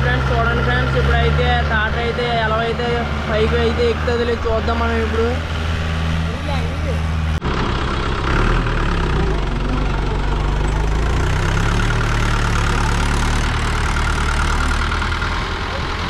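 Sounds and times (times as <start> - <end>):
tractor diesel engine under load: 0.0 - 16.0.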